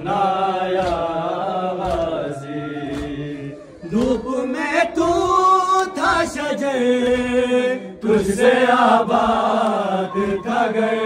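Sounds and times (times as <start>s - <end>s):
men chanting in unison: 0.0s - 11.0s
hand slaps on chest: 0.8s - 2.3s, 2.9s - 3.3s.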